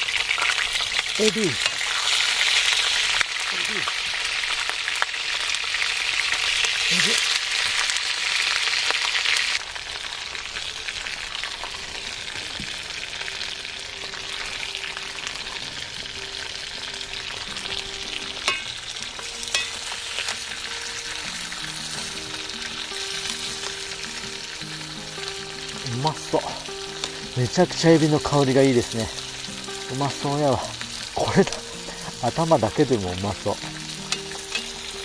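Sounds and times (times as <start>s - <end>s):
shrimp sizzling in oil: 0.0s - 35.0s
background music with held notes: 12.6s - 35.0s
metal tongs clicking on pan: 18.4s - 18.7s, 19.5s - 20.4s, 34.1s - 34.9s.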